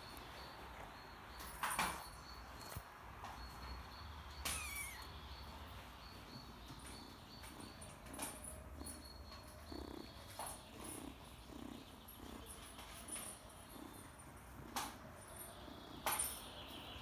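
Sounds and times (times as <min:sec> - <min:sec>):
high falling squeak: 0:04.4 - 0:05.1
kitten purring: 0:06.2 - 0:16.8.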